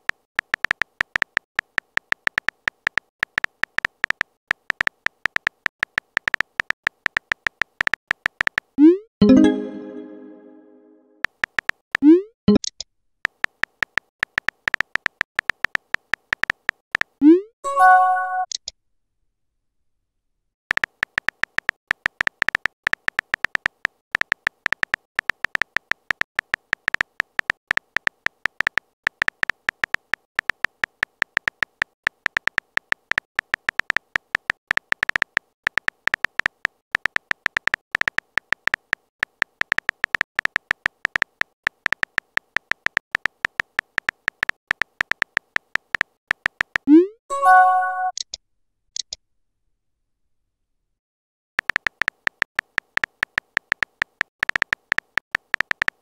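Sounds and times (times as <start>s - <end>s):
phone keyboard clicks: 0.0s - 8.8s, 11.2s - 17.2s, 20.7s - 46.9s, 51.6s - 56.0s
message sent chime: 9.2s - 11.1s, 17.7s - 18.5s, 46.9s - 48.2s.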